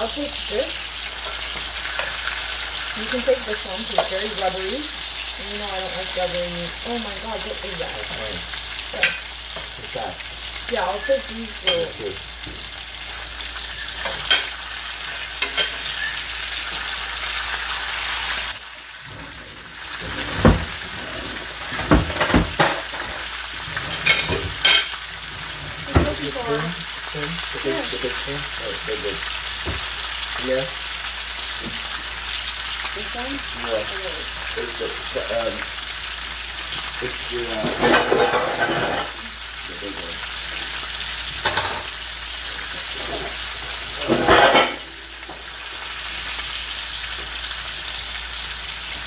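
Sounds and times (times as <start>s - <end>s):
meat sizzling in hot oil: 0.0s - 49.0s
knocks against a pan: 21.8s - 22.9s, 29.6s - 29.8s.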